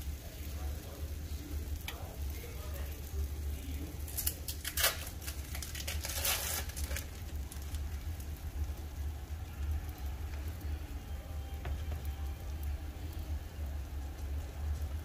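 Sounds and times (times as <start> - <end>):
bread frying in a pan: 0.0 - 15.0
crinkling: 4.0 - 8.4.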